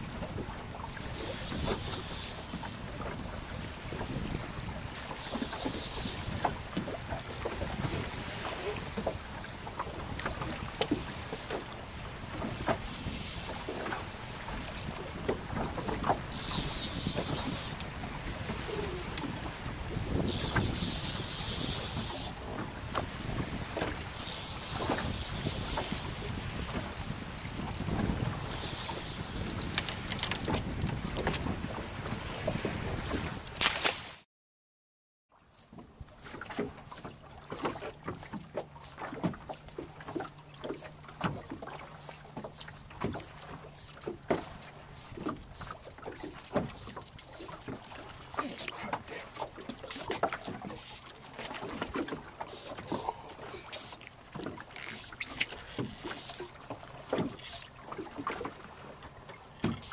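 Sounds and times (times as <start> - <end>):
waves lapping against boat: 0.0 - 34.2, 35.3 - 59.9
wind buffeting microphone: 2.7 - 11.1, 12.0 - 33.5.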